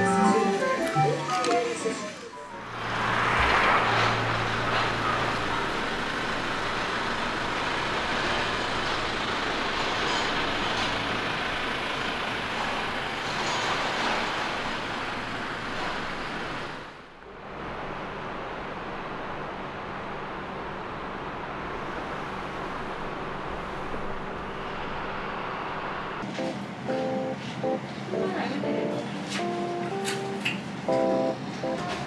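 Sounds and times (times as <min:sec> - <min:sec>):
vehicle rumble: 0:01.6 - 0:26.8.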